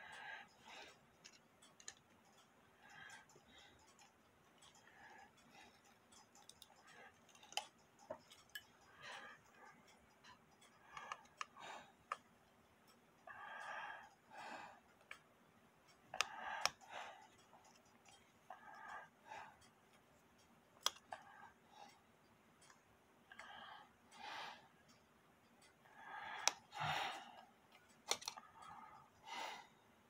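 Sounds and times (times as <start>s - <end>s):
screwdriver clicking and scraping: 3.1s - 8.8s, 20.8s - 21.2s, 27.8s - 28.5s.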